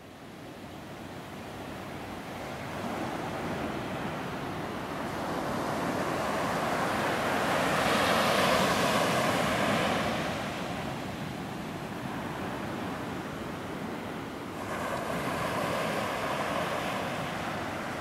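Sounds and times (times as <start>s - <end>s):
waves washing on a beach: 0.4s - 18.0s.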